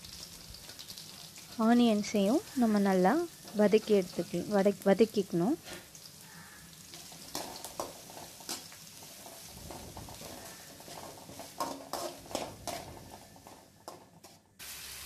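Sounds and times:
onions sizzling in oil: 0.0s - 15.0s
spatula scraping and clinking pan: 6.9s - 14.4s.

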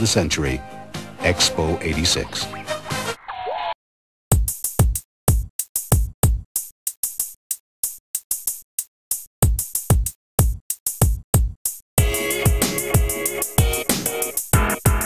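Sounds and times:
drum machine beat: 4.3s - 15.0s.

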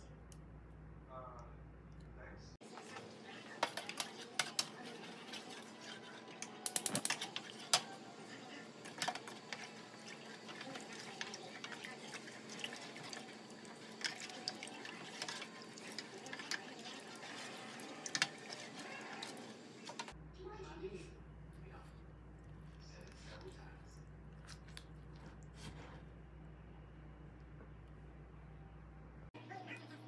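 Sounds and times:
liquid swishing: 2.8s - 20.2s.

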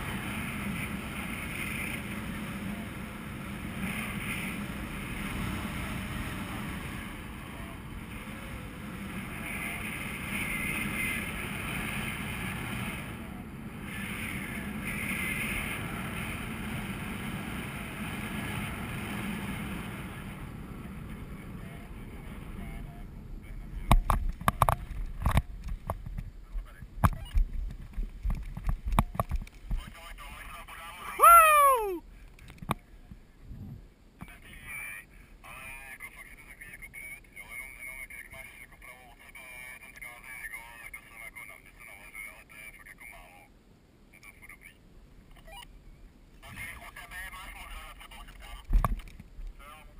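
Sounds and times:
knocks and thumps on camera: 27.0s - 29.8s
wind rushing over microphone: 33.4s - 33.9s.

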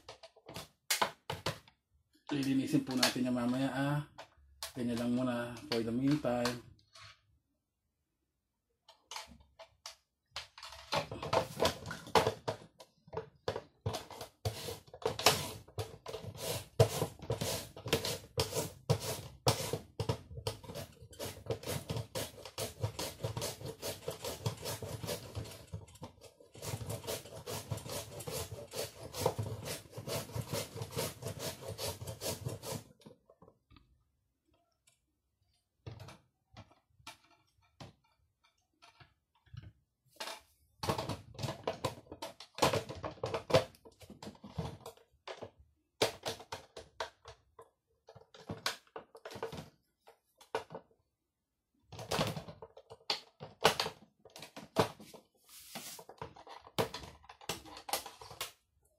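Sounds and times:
carrot rasping on a slicer: 16.2s - 19.8s, 20.7s - 25.6s, 26.6s - 32.9s.

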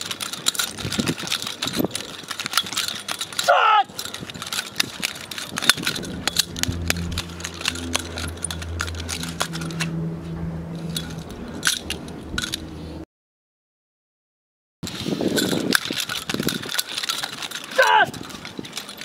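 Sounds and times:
metal blades clicking: 0.0s - 10.1s, 10.8s - 12.8s, 15.3s - 19.0s
low droning tone: 4.0s - 13.0s.

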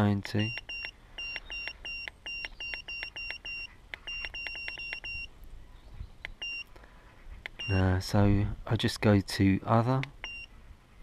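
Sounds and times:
short high beeps: 0.4s - 5.3s, 6.4s - 6.7s, 7.6s - 7.9s, 10.2s - 10.5s.

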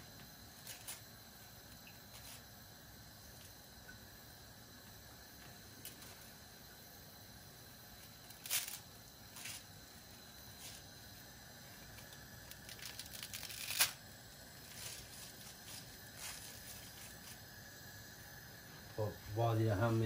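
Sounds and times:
dry noodle sticks clicking and rattling: 12.4s - 14.0s.

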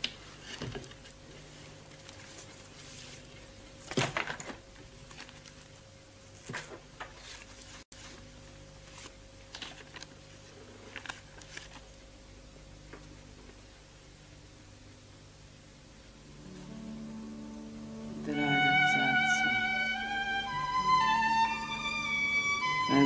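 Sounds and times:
paper rustling: 2.0s - 8.2s, 8.8s - 12.0s
low hum: 15.5s - 23.0s.

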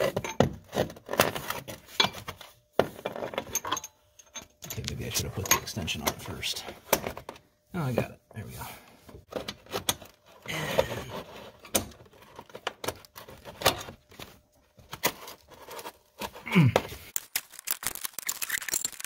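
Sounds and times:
metal tools clinking: 3.2s - 6.5s, 18.2s - 19.0s.

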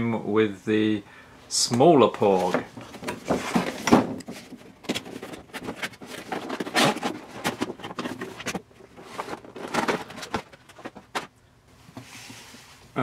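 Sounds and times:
packaging crinkling and rustling: 2.2s - 11.4s.

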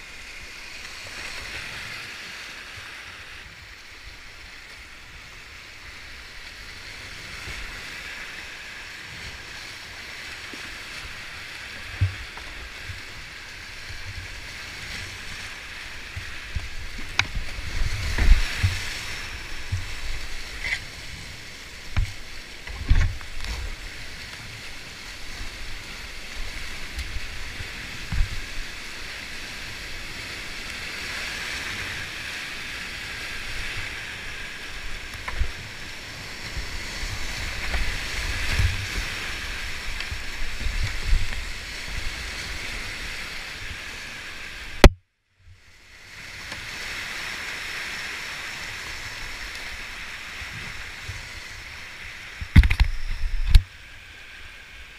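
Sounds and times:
rushing whitewater: 0.0s - 44.9s, 45.7s - 54.9s
kayak thumps and splashes: 16.1s - 20.8s, 21.9s - 23.8s, 52.4s - 53.7s.

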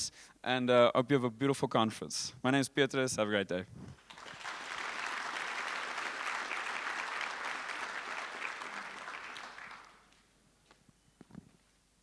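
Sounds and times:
audience applauding: 4.0s - 10.2s.

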